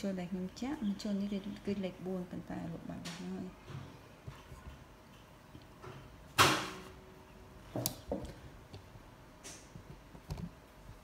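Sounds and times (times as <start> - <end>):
soft taps and rustles of yarn: 7.8 - 11.0.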